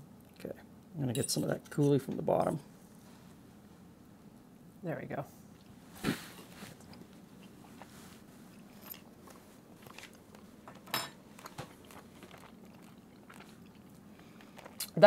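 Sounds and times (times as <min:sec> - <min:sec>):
faint room hum: 0:00.0 - 0:15.0
quiet chewing: 0:05.5 - 0:15.0.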